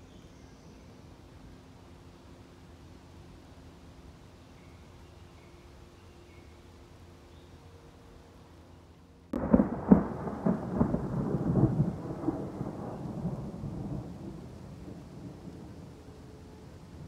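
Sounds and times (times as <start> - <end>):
thunder crack and rumble: 9.4 - 16.0.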